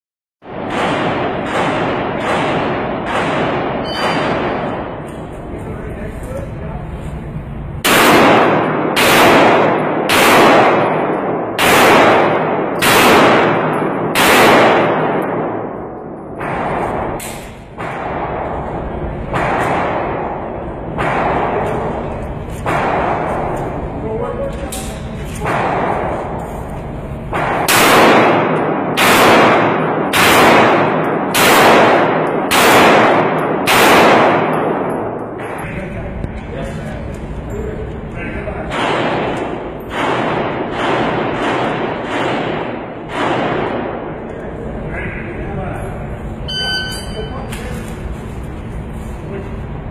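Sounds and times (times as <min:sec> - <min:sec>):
indoor gunshots: 0:00.4 - 0:06.1, 0:07.7 - 0:37.6, 0:38.2 - 0:45.1
ringing echo off concrete walls: 0:00.4 - 0:49.9
handgun shots: 0:00.6 - 0:05.2, 0:07.9 - 0:18.3, 0:27.3 - 0:35.6, 0:38.7 - 0:44.0.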